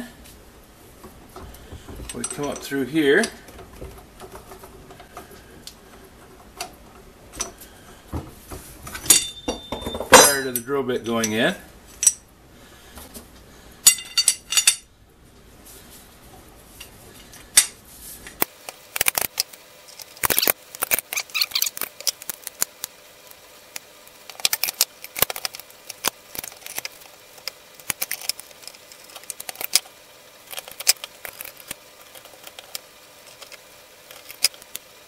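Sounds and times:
metal parts clicking and clinking: 1.4 - 4.6, 13.9 - 14.9, 18.4 - 34.9.

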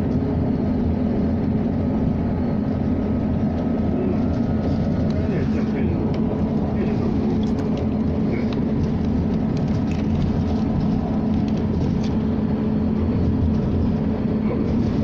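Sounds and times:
bus diesel engine drone: 0.0 - 15.0
road noise: 0.0 - 15.0.

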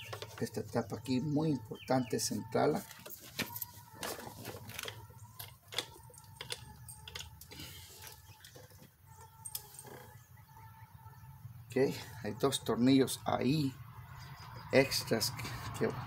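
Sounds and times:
tools clicking and jingling: 2.9 - 10.0.

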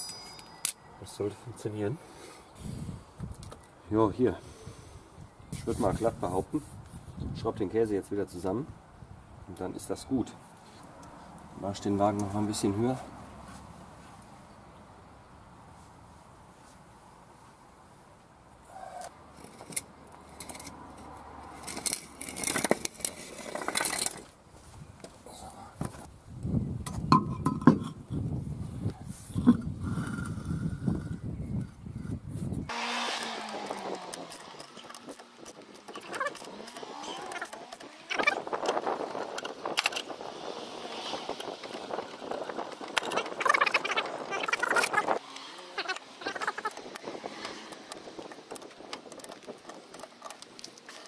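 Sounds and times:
wooden blocks knocking and scraping: 19.0 - 24.4, 41.2 - 51.0.

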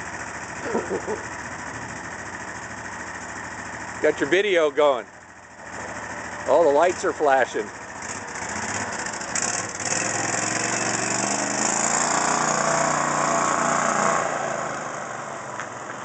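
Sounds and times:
small engine speeding up: 0.0 - 16.0.

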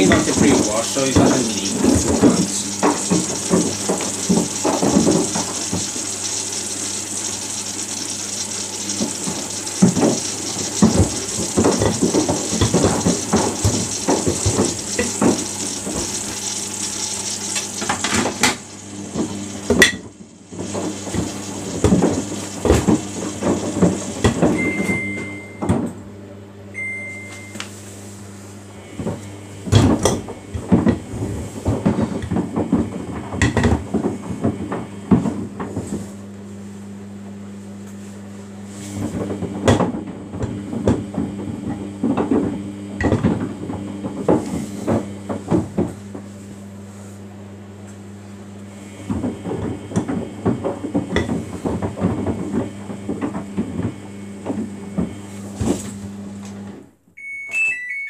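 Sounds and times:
water inflow hissing: 0.0 - 24.6
washing machine drum tumbling: 0.0 - 25.5
motor hum: 0.0 - 25.6
short high beeps: 57.2 - 58.0.

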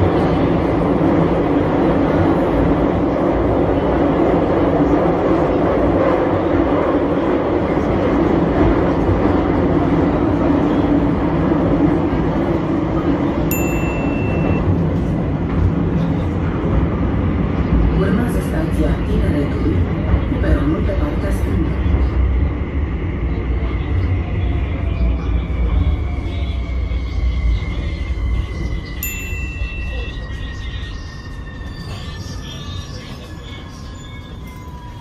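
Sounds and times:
metro train rumbling in tunnel: 0.0 - 35.0
short high beep: 13.6 - 14.6.

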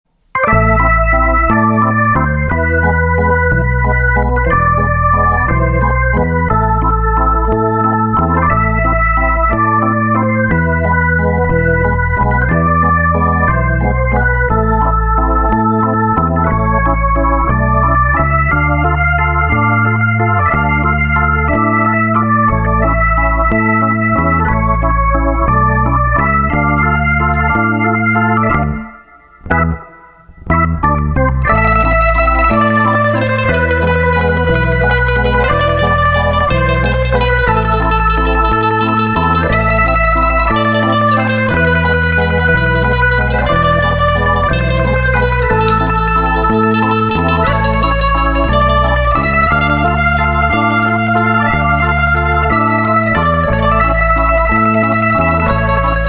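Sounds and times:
organ-like keyboard tune with bass: 0.2 - 56.0.

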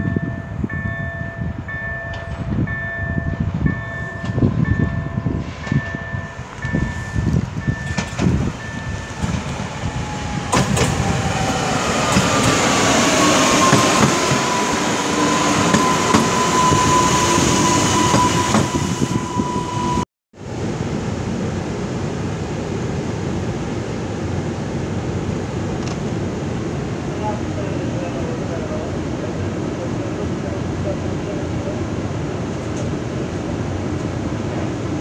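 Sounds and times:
electric train whine: 0.0 - 35.0
wheels rumbling on rails: 0.0 - 35.0.

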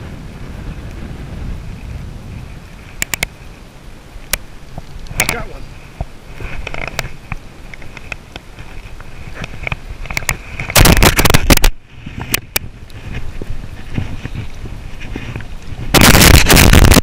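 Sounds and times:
sharp clicks: 3.0 - 3.4.

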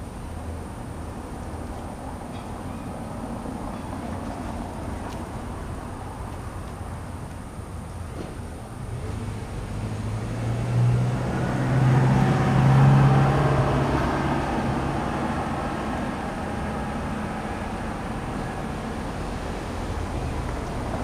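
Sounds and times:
passing vehicle engine drone: 8.8 - 21.0.

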